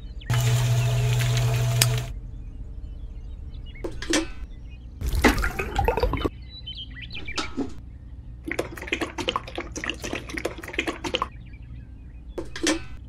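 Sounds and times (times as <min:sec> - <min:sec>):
cement pouring into metal bucket: 0:00.3 - 0:02.1
cement splashing and trickling: 0:00.3 - 0:02.1, 0:05.0 - 0:06.3, 0:08.5 - 0:11.3.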